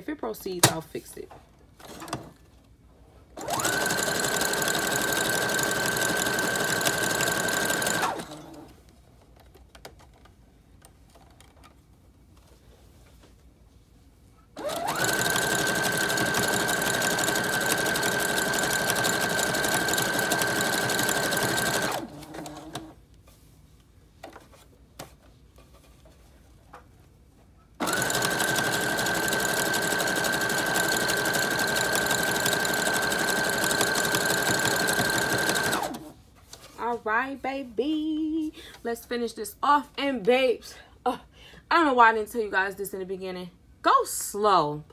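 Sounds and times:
sewing machine motor whine: 0:03.4 - 0:08.6, 0:14.6 - 0:22.9, 0:27.8 - 0:36.1.

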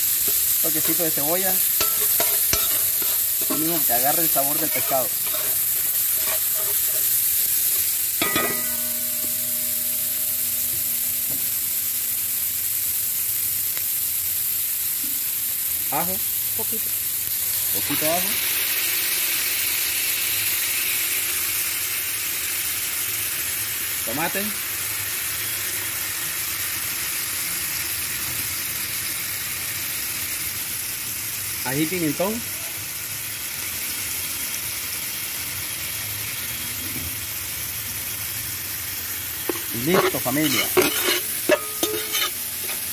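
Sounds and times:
metal spatula stirring: 0:00.0 - 0:11.9, 0:39.4 - 0:42.9
onion sizzling in hot oil: 0:00.0 - 0:42.9
ringing metallic clank: 0:01.8 - 0:13.0, 0:39.5 - 0:42.9.

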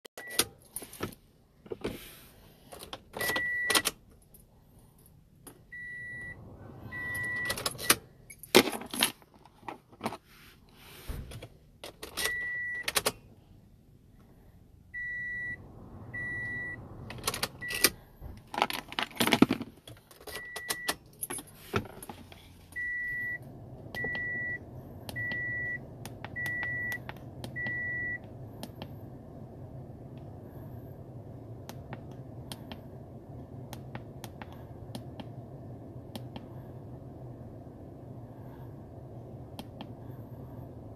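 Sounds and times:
low steady hum: 0:00.2 - 0:40.9
car key and buttons clattering: 0:07.0 - 0:10.2, 0:11.3 - 0:13.3, 0:17.0 - 0:22.9.

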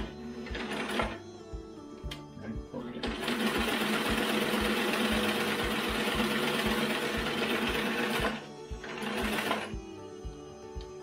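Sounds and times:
sewing machine running: 0:00.0 - 0:01.2, 0:03.0 - 0:09.8
background music with steady beat: 0:00.0 - 0:11.0.

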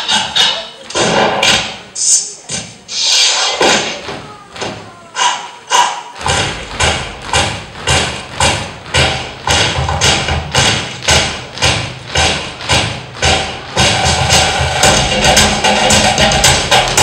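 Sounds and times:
dancers stamping in unison: 0:03.6 - 0:17.0
music: 0:06.2 - 0:17.0.

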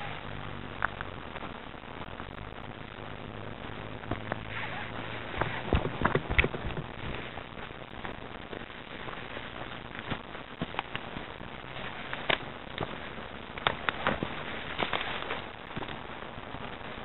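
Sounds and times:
steady hiss: 0:00.0 - 0:17.0
footsteps crunching dry leaves: 0:06.5 - 0:16.0.

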